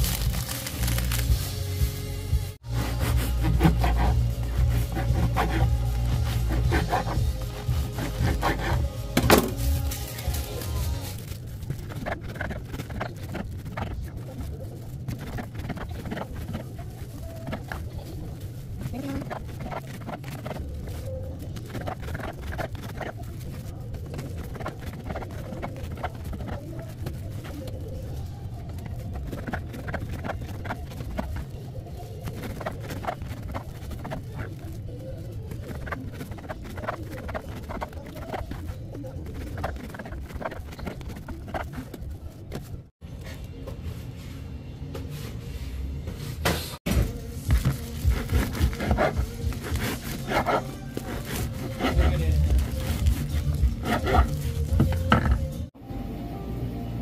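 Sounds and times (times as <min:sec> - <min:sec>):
bread knife sawing through crust: 0:02.7 - 0:09.2, 0:47.9 - 0:54.6.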